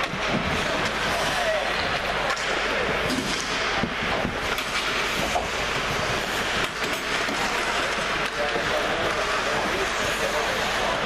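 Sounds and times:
ice rink hall noise: 0.0 - 11.0
skates and sticks scraping ice: 0.0 - 11.0.

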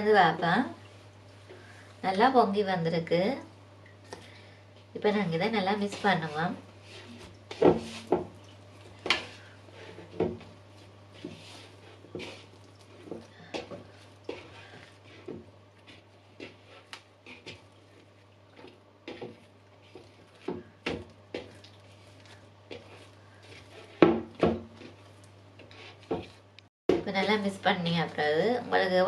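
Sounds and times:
dough kneaded by hand thumps: 5.7 - 17.7, 18.6 - 27.4.

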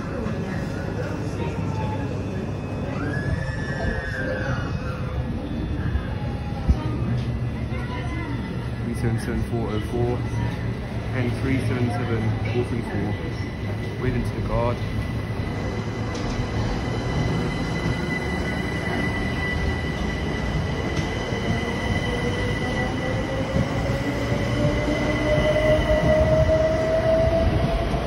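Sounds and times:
train wheels rumbling on track: 6.6 - 28.0.

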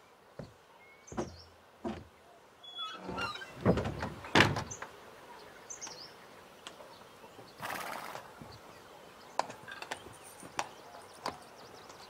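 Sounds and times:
knocking on wooden door: 1.1 - 2.1.

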